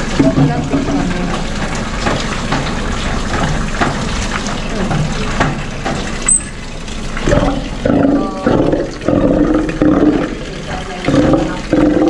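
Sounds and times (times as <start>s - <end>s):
sea lion roaring: 7.2s - 12.0s.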